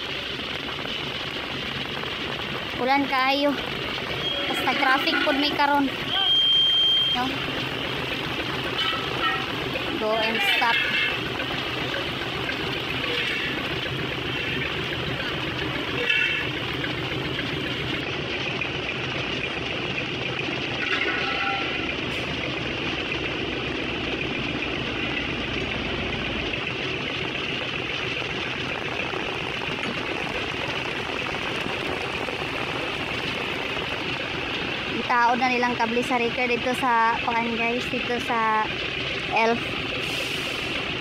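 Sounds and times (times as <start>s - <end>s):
heavy rain hissing: 0.0s - 18.0s, 27.6s - 41.0s
truck engine idling: 0.0s - 41.0s.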